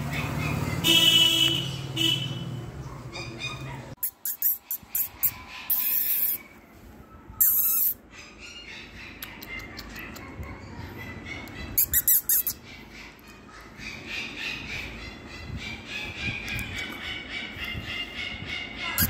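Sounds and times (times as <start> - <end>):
puppy whimpering: 3.1 - 6.6, 7.4 - 17.8.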